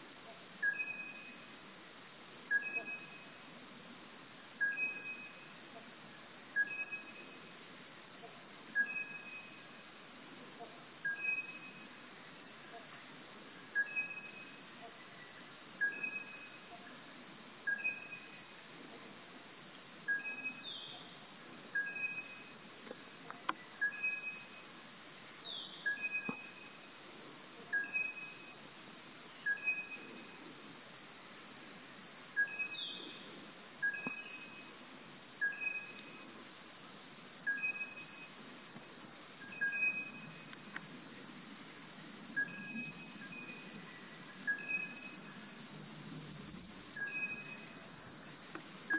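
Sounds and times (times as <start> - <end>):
high-pitched insect drone: 0.6 - 1.5, 4.6 - 5.8, 6.5 - 7.6, 8.6 - 9.9, 10.8 - 13.0, 13.7 - 27.0, 27.7 - 28.7, 29.3 - 30.5, 32.4 - 36.4, 37.4 - 41.3, 42.2 - 48.9.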